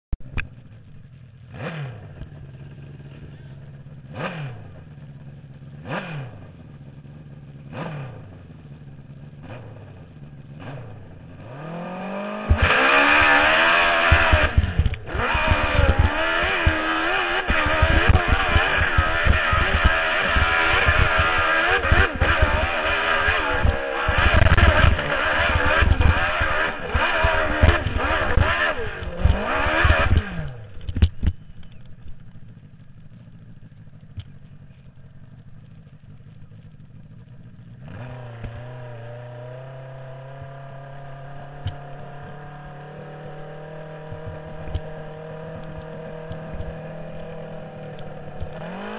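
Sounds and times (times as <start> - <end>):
dirt bike engine revving: 1.4 - 33.7, 37.6 - 48.9
knocks and clatter from rough ground: 12.4 - 32.5.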